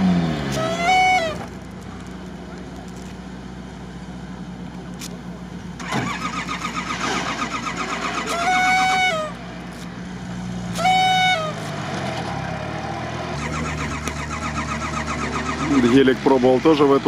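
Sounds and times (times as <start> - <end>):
vehicle engine running: 0.0 - 17.0
vehicle horn honking: 0.5 - 1.6, 8.2 - 9.4, 10.8 - 11.8.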